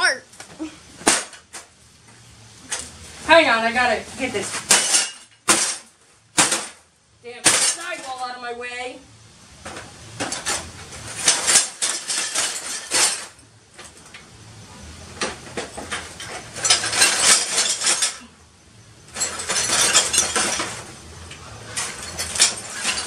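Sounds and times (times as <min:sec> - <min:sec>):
broken glass clinking and rattling: 0:04.6 - 0:06.8, 0:07.4 - 0:08.4, 0:09.7 - 0:14.0, 0:15.2 - 0:18.4, 0:19.0 - 0:23.0.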